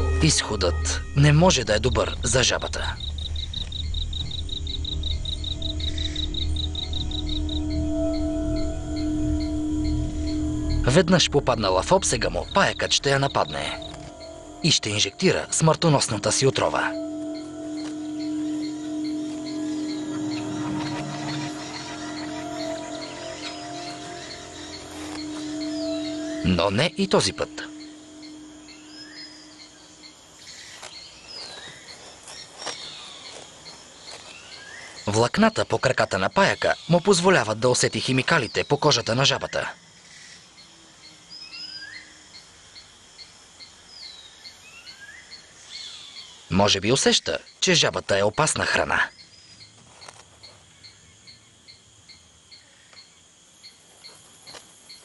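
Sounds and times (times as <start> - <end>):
whistled calls: 0.0 - 32.0
insect chirping: 0.0 - 55.0.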